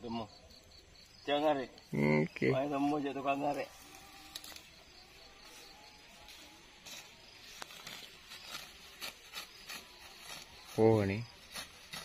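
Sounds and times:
rustling of long grass: 2.5s - 12.0s.

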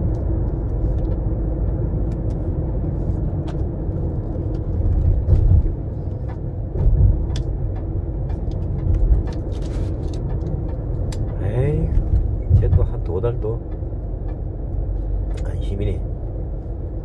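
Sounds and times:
road and engine rumble: 0.0s - 17.0s
light clicks and rattles: 3.4s - 15.9s.

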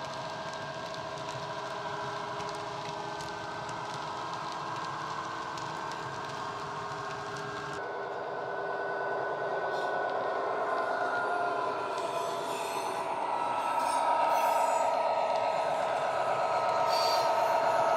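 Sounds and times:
diesel locomotive engine through speaker: 7.8s - 17.9s.

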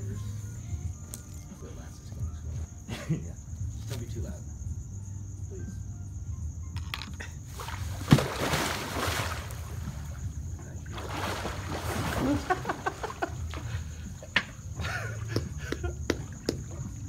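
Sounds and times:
small splashes and drips: 7.5s - 17.0s
water churning and sloshing: 7.5s - 17.0s
loud splash into pool: 7.6s - 9.7s, 10.9s - 13.2s.

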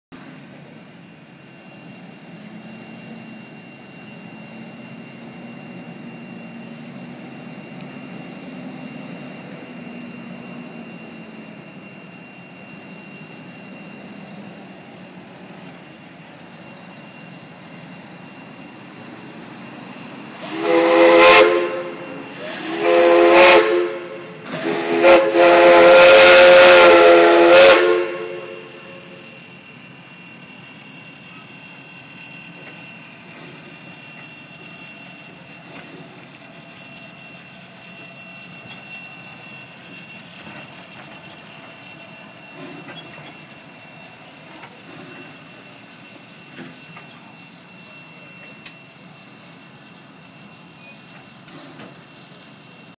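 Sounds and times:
steam locomotive whistle: 20.3s - 52.8s.

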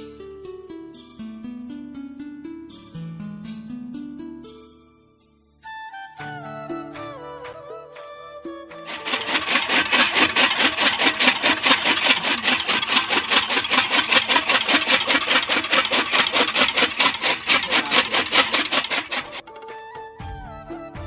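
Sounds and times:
chaff cutter chopping fodder: 8.9s - 19.4s.

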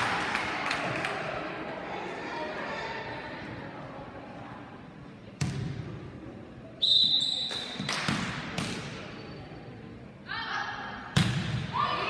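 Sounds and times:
referee's whistle: 6.8s - 7.8s.

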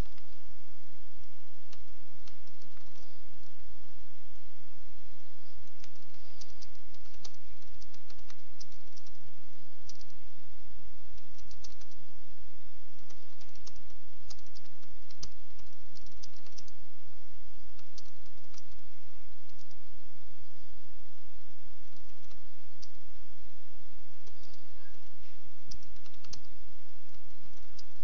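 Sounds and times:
low hum: 0.0s - 28.0s
keyboard typing: 1.7s - 3.6s, 5.5s - 9.2s, 9.8s - 10.2s, 11.2s - 12.0s, 13.0s - 16.8s, 17.7s - 18.8s, 19.4s - 19.8s, 21.9s - 23.0s, 24.2s - 25.1s, 25.7s - 28.0s.

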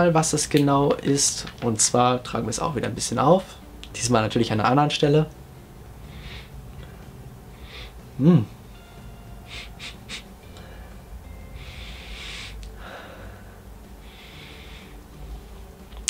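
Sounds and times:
long inhale through the nose: 6.0s - 8.1s, 9.4s - 15.3s
man sniffing: 6.1s - 6.5s, 9.5s - 10.3s, 11.6s - 12.7s
man humming briefly: 8.2s - 8.6s.

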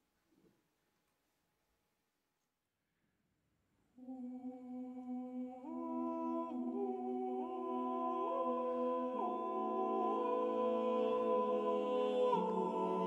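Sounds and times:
male a cappella choir singing: 4.1s - 13.0s.

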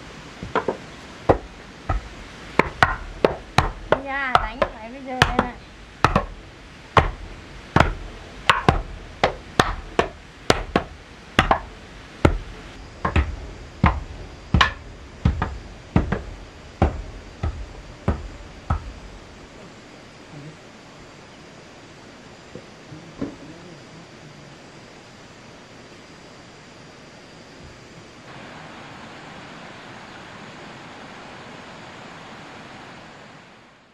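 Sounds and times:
blade chopping on a board: 0.5s - 6.4s, 7.8s - 18.9s.

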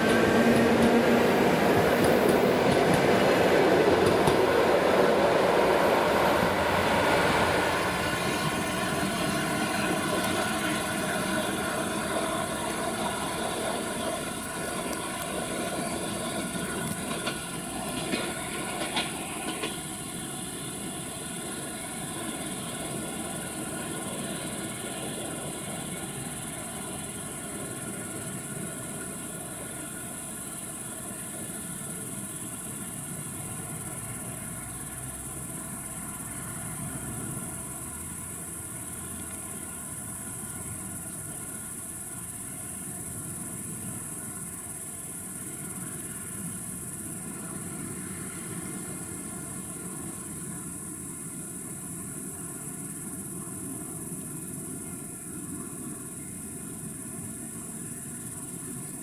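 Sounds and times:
steady high-pitched hiss: 0.0s - 59.0s
train rumbling along track: 0.0s - 59.0s.

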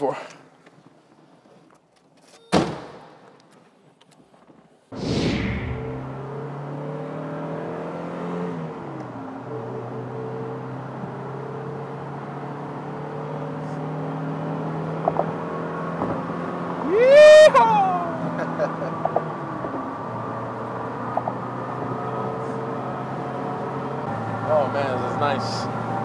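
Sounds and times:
loud rising yell: 5.0s - 6.2s, 16.8s - 18.7s
swoosh: 5.0s - 6.2s
car engine accelerating: 5.0s - 26.0s.

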